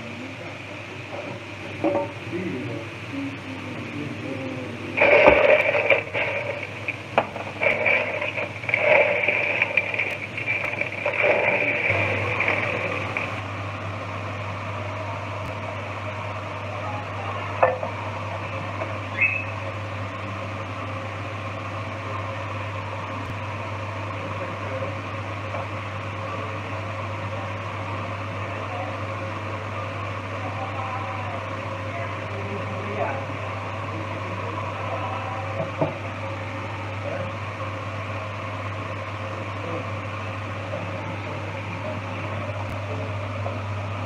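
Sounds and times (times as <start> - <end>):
kitchen fan motor humming: 0.0 - 44.0.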